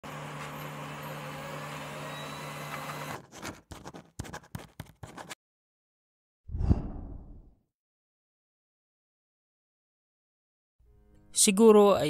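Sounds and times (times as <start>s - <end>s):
marker pen writing on a board: 3.2s - 5.4s.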